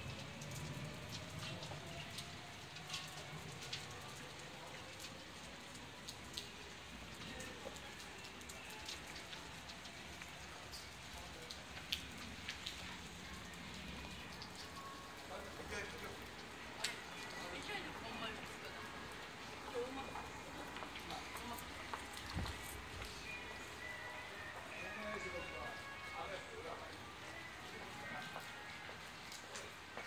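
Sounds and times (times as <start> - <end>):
raindrops tapping: 0.0 - 23.8
light rain hissing: 0.0 - 30.0.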